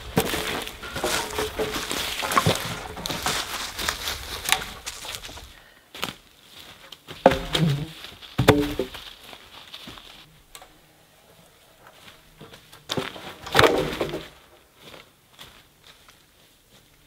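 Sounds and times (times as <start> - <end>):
wooden poles clattering: 0.0 - 5.6, 6.6 - 15.0
crunch of dead branches and leaves: 0.0 - 17.0.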